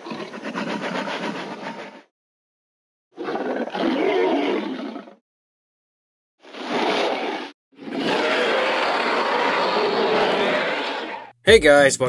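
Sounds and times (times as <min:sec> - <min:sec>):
dinosaur roar: 0:03.2 - 0:05.2, 0:06.4 - 0:11.3.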